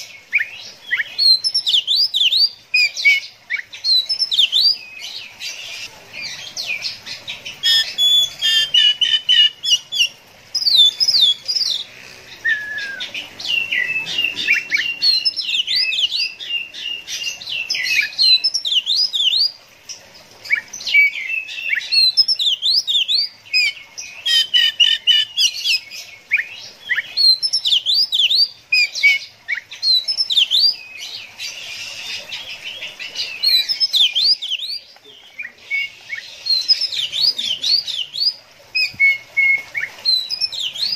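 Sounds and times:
bird singing whistled trills: 12.4s - 19.5s, 20.5s - 31.0s, 33.4s - 40.9s.

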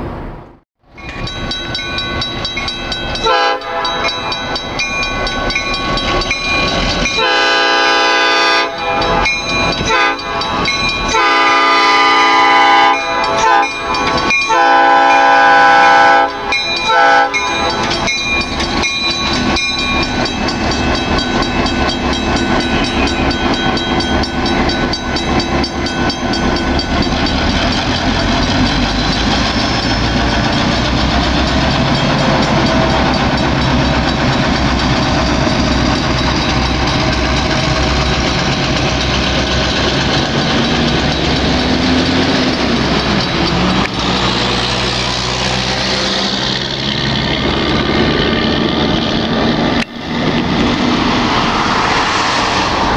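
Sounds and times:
diesel locomotive engines running: 0.0s - 52.9s
wheels rolling on rails: 17.6s - 52.9s.

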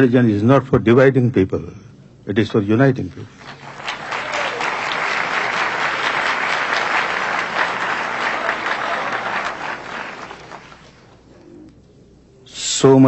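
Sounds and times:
audience applauding: 3.4s - 11.3s.

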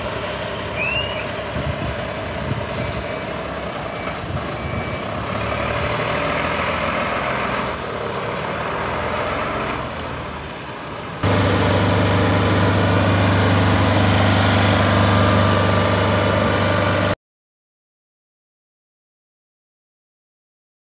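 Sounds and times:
fire truck diesel engine: 0.0s - 17.2s
portable generator running: 11.2s - 17.2s.

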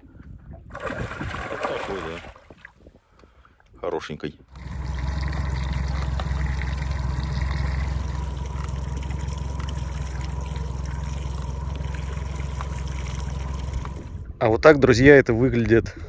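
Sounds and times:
water splashing against boat hull: 0.5s - 2.8s
low hum: 4.5s - 15.4s.

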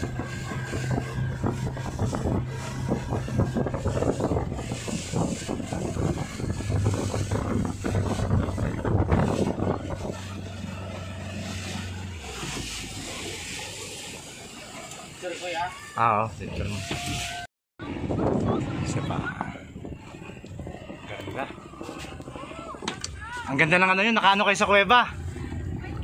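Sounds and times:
rushing water spray: 0.0s - 17.5s
speedboat engine running: 0.0s - 26.0s
wind: 0.0s - 26.0s.

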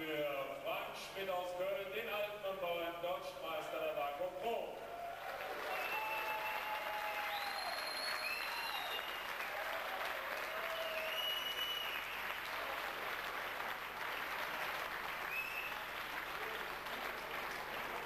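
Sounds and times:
crowd applauding: 4.9s - 18.0s
high-pitched whistles: 7.3s - 9.3s, 10.7s - 12.2s.

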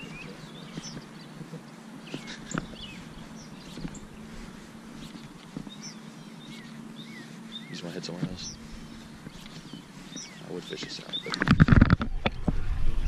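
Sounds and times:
birds chirping: 0.0s - 13.0s
steady low hum: 0.0s - 13.0s.

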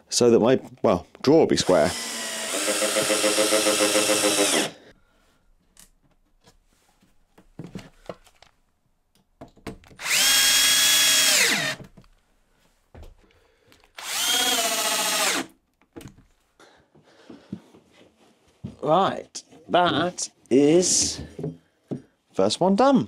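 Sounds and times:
cordless drill driving screws: 1.6s - 4.8s, 10.0s - 11.8s, 14.0s - 15.5s.

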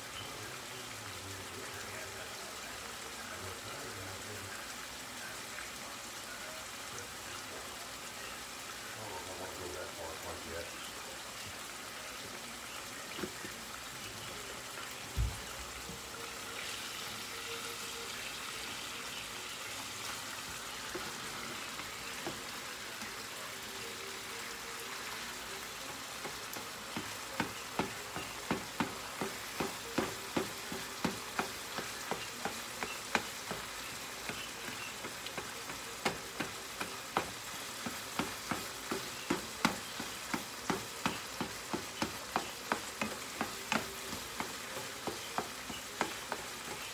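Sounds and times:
meat sizzling in a frying pan: 0.0s - 46.9s
spatula scraping and tapping pan: 19.8s - 23.1s, 26.1s - 46.9s.

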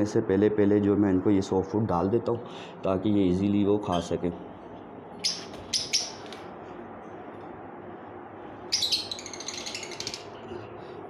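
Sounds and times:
lovebirds chirping: 5.2s - 6.4s, 8.7s - 11.0s.

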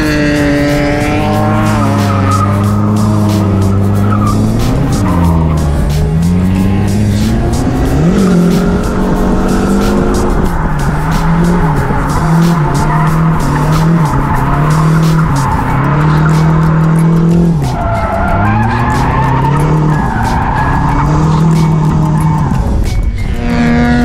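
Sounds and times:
tyres squealing on wet asphalt: 0.0s - 6.3s, 8.0s - 22.8s
car engine revving hard: 0.0s - 24.0s.

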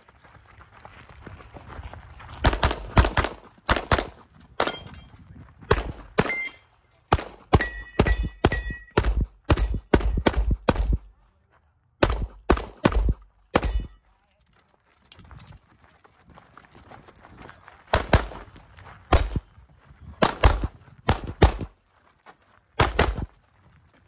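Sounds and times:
rapid gunshots: 20.2s - 21.7s.

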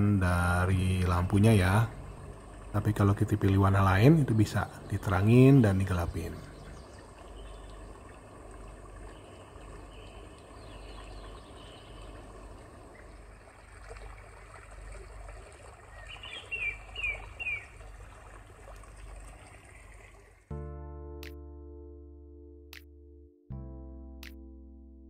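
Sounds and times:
recorded birds chirping: 0.0s - 18.1s
running water: 0.0s - 20.5s.

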